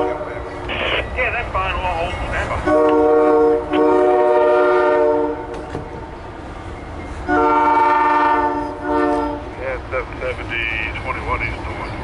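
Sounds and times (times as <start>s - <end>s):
train rumble: 0.0s - 12.0s
locomotive horn blasts: 2.6s - 5.6s, 7.2s - 9.5s.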